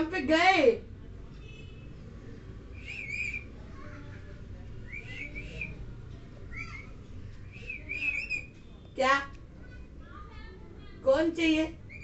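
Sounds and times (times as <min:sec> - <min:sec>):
parakeet whistled calls: 0:02.8 - 0:03.5, 0:04.9 - 0:05.8, 0:06.5 - 0:06.9, 0:07.5 - 0:08.5.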